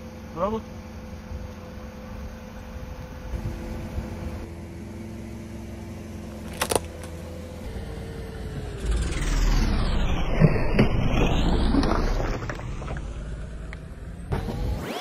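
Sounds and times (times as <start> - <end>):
car engine humming: 0.0 - 14.9
tyre crushing small object: 6.4 - 7.2.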